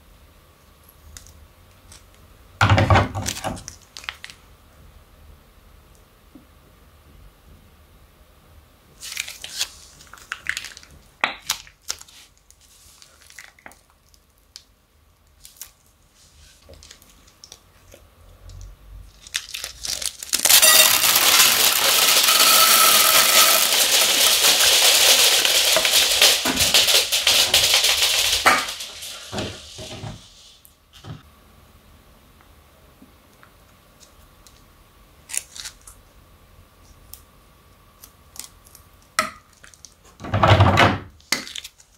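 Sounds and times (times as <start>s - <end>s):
plastic bag crinkling: 19.0s - 29.8s
beads pouring into glass bowl: 20.4s - 29.3s.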